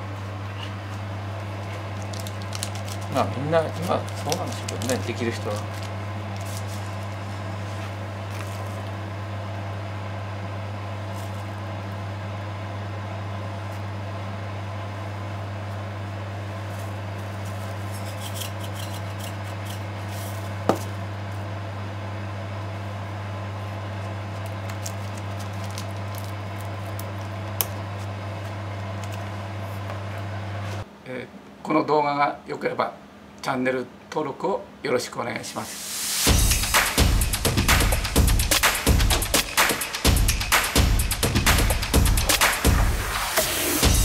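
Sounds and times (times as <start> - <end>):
steady low hum: 0.0 - 44.0
plastic wrap crinkle: 1.6 - 9.0, 24.3 - 28.1.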